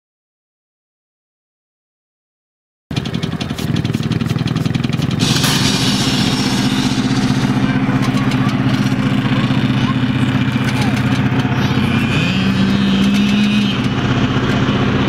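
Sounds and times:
go-kart engine idling: 2.9 - 15.0
bright hiss: 5.2 - 12.0.

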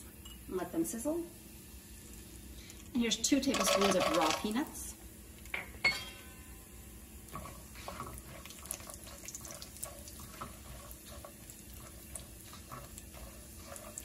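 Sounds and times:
spices sizzling in hot oil: 0.0 - 5.8, 6.5 - 14.0
spatula stirring in pan: 7.1 - 14.0.

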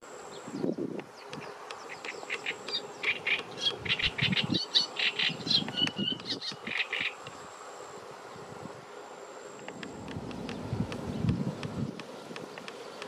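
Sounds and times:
cygnets peeping: 0.4 - 7.3.

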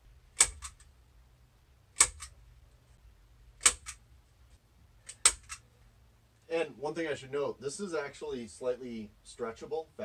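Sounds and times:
staple gun firing: 0.4 - 0.8, 2.0 - 2.3, 3.6 - 4.0, 5.1 - 5.6.

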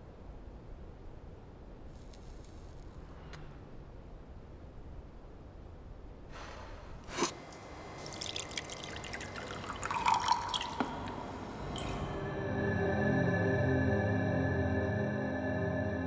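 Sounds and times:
soft hiss: 0.0 - 4.4
liquid dripping and trickling: 7.4 - 11.6.

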